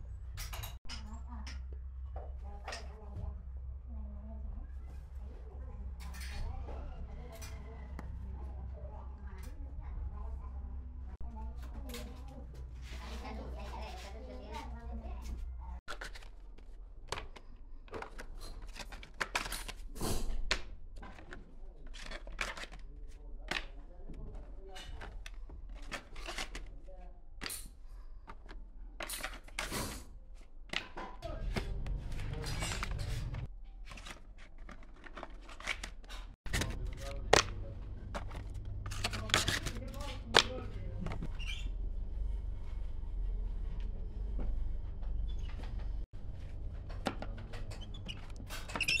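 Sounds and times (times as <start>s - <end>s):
low machine hum: 36.5s - 48.0s.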